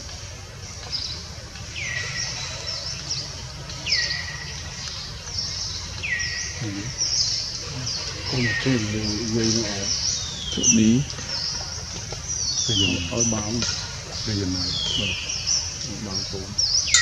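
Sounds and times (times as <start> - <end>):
low background noise: 0.0 - 17.0
high bird chirping: 5.4 - 11.5, 12.4 - 13.6, 14.2 - 17.0.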